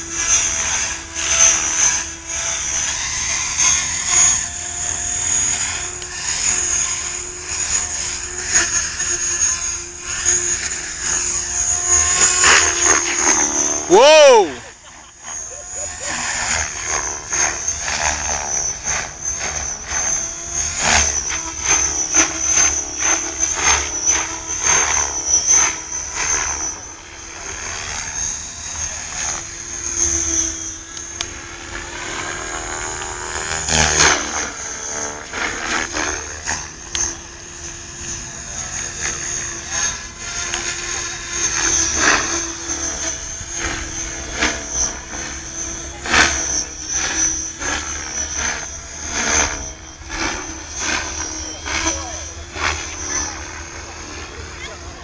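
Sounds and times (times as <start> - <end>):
rotor swishes: 0.0 - 14.6, 31.4 - 55.0
model helicopter whine: 0.0 - 55.0.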